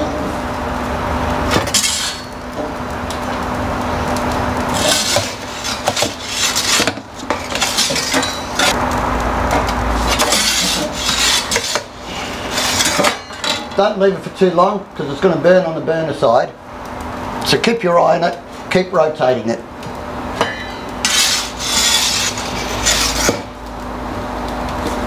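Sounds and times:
gas burner flame rushing: 0:00.0 - 0:25.0
metal peel scraping stone: 0:01.5 - 0:02.4, 0:04.7 - 0:08.8, 0:10.0 - 0:13.8, 0:20.4 - 0:23.6.

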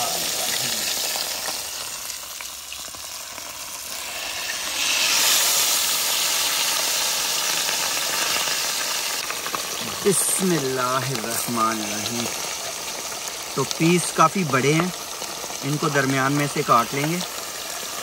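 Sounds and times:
fish sizzling in hot oil: 0:00.0 - 0:18.0.

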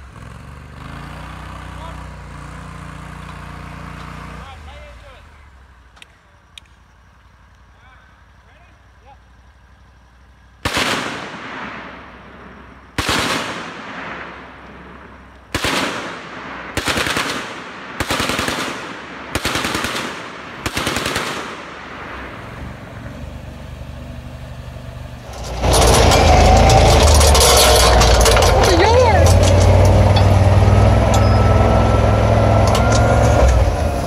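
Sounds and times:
vehicle engine rushing: 0:00.0 - 0:16.8, 0:20.2 - 0:34.0
machine-gun fire with echo: 0:10.6 - 0:22.2.

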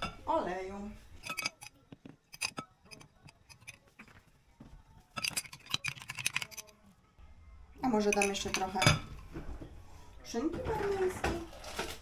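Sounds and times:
metal spoon clinking against glass: 0:01.2 - 0:04.1, 0:05.1 - 0:06.8, 0:08.0 - 0:09.0.

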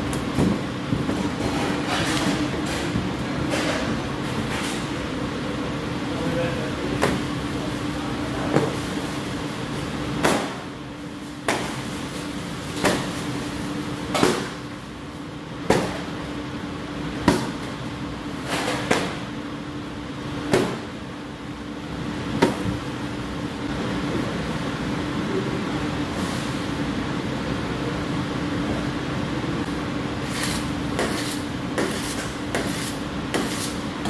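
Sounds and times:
steady low hum: 0:00.0 - 0:34.0
dough slapping on steel table: 0:10.2 - 0:10.7, 0:11.4 - 0:11.8, 0:14.2 - 0:14.7, 0:20.4 - 0:21.0, 0:30.3 - 0:33.8.

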